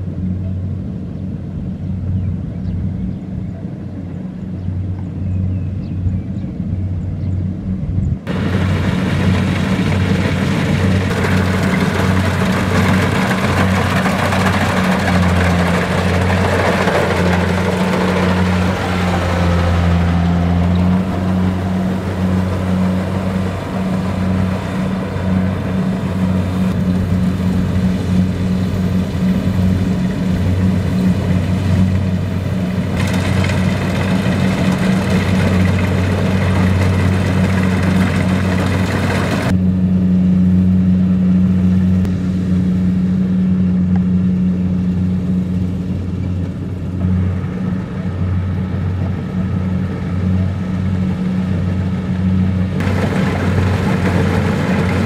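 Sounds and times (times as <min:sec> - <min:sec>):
harvester engine hum: 0:00.0 - 0:55.0
machinery working noise: 0:08.3 - 0:39.8, 0:45.6 - 0:55.0.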